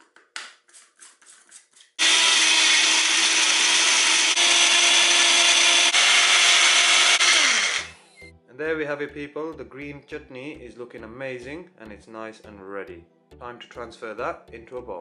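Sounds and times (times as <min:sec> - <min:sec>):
blender motor humming: 0:02.0 - 0:08.2.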